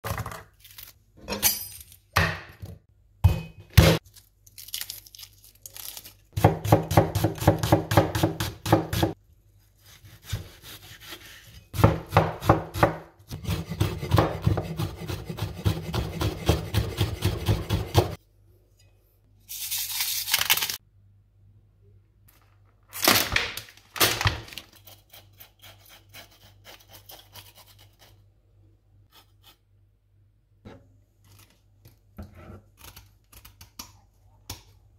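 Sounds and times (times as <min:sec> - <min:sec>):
knife chopping on wooden board: 0:06.4 - 0:09.2, 0:11.8 - 0:18.2.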